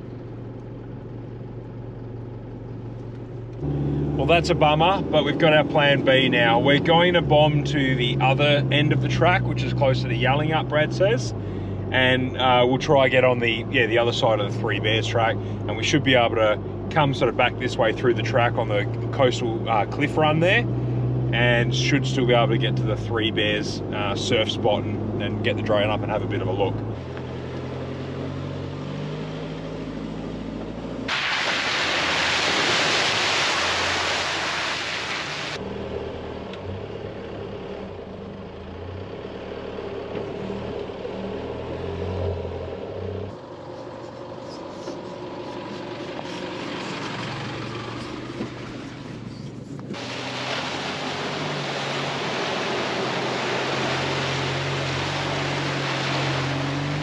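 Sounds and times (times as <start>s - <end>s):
off-road vehicle engine hum: 0.0s - 57.0s
tyre and road noise: 0.0s - 57.0s
water splashing hiss: 31.1s - 35.6s, 49.9s - 57.0s.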